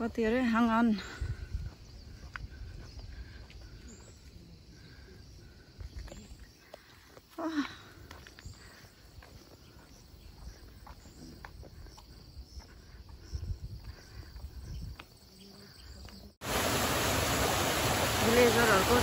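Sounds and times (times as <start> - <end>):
waterfall splashing over rocks: 16.4 - 19.0.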